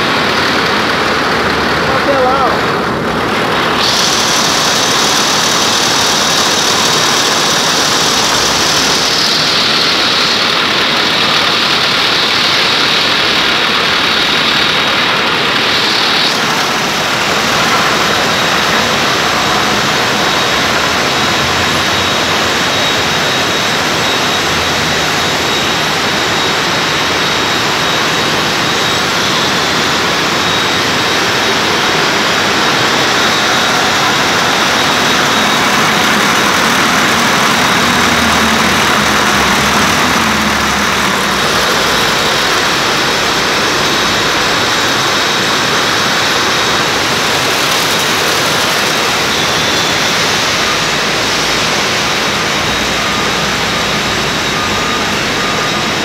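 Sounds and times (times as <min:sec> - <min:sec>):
cans rattling on conveyor: 0:00.0 - 0:22.1, 0:31.9 - 0:50.3
machinery noise: 0:00.0 - 0:56.0
thin high whine: 0:00.0 - 0:56.0.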